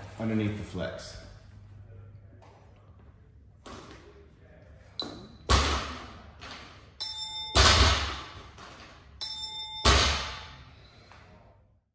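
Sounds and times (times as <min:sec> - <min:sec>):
electronic chime: 0:07.0 - 0:07.9, 0:09.2 - 0:10.2.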